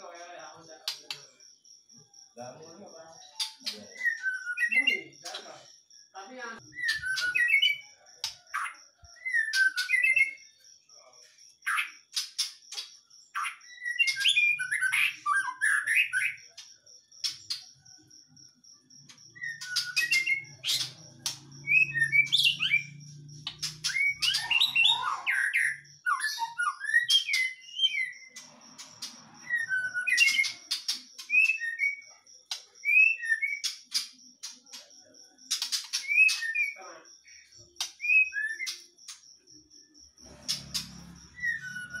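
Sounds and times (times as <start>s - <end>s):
bird singing whistled phrases: 3.3s - 5.2s, 6.7s - 7.9s, 13.7s - 16.4s, 19.4s - 21.0s, 21.6s - 23.0s, 23.6s - 28.4s, 29.4s - 32.1s, 32.8s - 33.7s, 38.0s - 38.8s, 41.3s - 42.0s.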